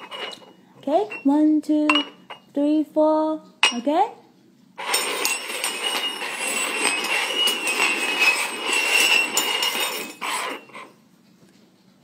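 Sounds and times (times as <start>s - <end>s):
metal cups scraping on table: 0.0s - 1.3s, 4.8s - 11.0s
cups clinking: 0.0s - 2.5s, 4.8s - 11.0s.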